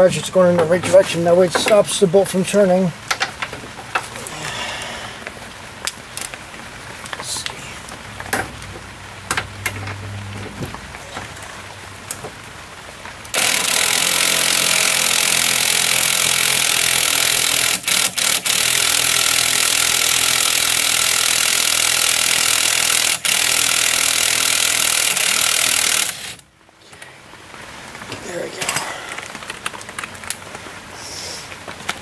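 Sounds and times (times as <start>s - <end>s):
impact wrench running: 13.4s - 26.4s.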